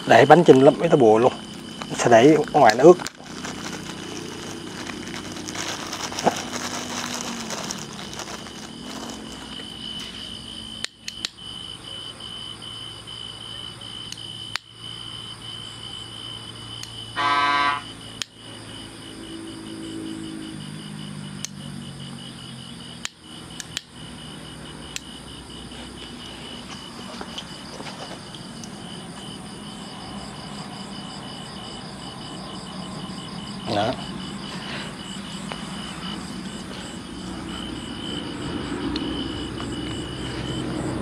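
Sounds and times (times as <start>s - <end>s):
crickets chirping: 0.0s - 41.0s
short horn beep: 17.2s - 17.9s.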